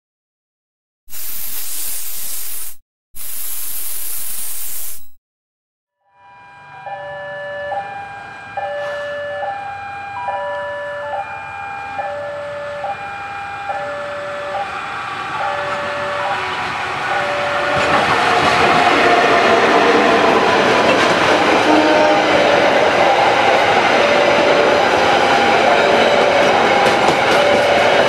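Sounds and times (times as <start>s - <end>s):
loud rushing hiss: 1.1s - 5.2s
level-crossing warning alarm: 6.0s - 28.0s
low rumble of approaching train: 13.8s - 28.0s.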